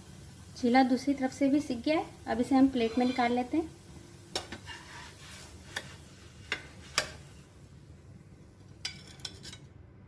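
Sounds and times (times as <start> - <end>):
steel spatula clicking on pan: 6.5 - 7.2.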